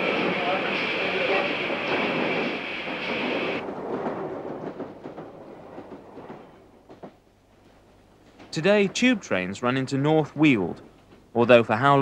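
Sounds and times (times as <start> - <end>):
steam hissing: 0.0 - 3.6
rail clicks: 0.0 - 11.7
train running on rails: 0.0 - 12.0.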